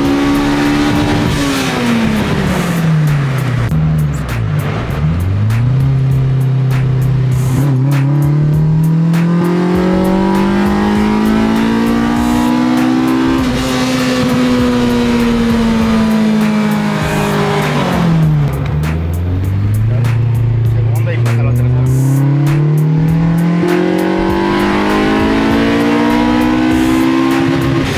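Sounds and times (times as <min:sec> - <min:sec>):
car engine revving: 0:00.0 - 0:27.9.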